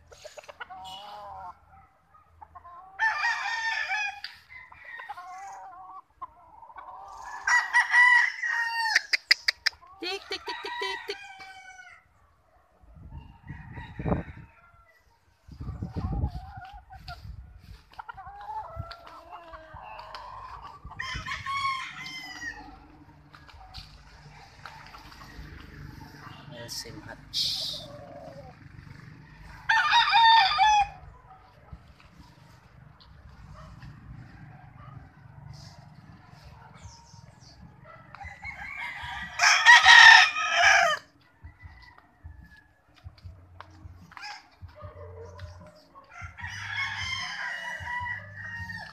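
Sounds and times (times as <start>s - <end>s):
roosters crowing: 0.0s - 12.2s, 13.1s - 48.9s
rooster crowing: 3.0s - 5.4s, 7.2s - 9.2s, 10.3s - 12.1s, 13.4s - 15.1s, 19.7s - 22.9s, 29.2s - 31.1s, 38.1s - 42.8s, 46.1s - 48.9s.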